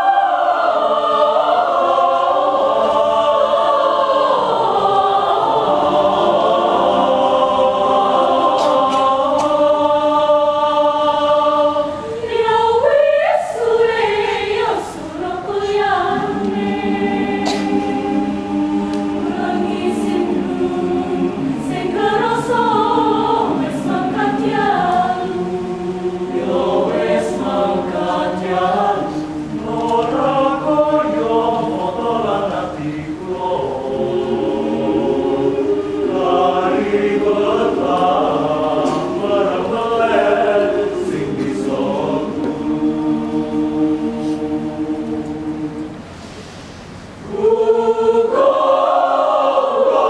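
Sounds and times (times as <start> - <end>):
choir singing a cappella: 0.0 - 50.0.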